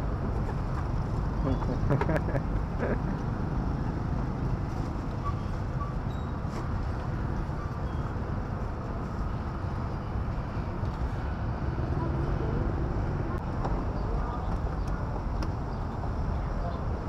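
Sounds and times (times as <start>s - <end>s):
traffic noise: 0.0s - 17.0s.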